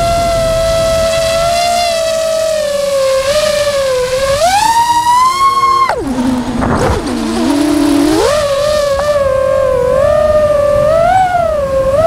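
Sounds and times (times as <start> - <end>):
quadcopter motors whining: 0.0 - 12.0.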